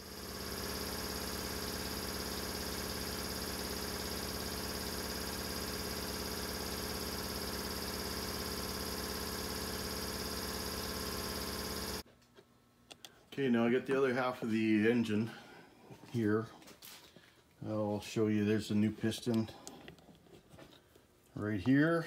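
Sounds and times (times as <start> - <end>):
electrical hum and buzz: 0.0 - 15.2.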